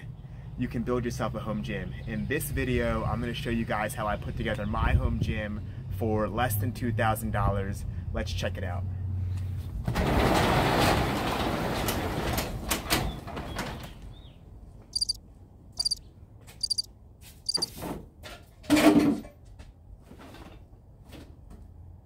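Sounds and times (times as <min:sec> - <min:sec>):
garage door rattling on tracks: 0:09.8 - 0:13.8
short high chirps: 0:15.0 - 0:15.2, 0:15.8 - 0:16.0, 0:16.6 - 0:16.9, 0:17.5 - 0:17.7.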